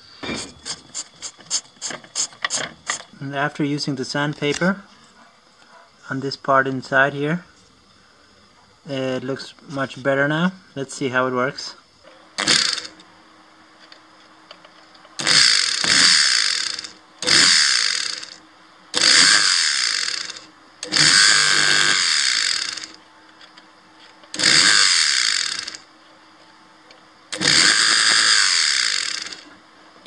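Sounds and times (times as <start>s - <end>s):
electric motor whirring: 12.4s - 13.0s, 15.2s - 23.6s, 24.3s - 25.9s, 27.3s - 29.6s.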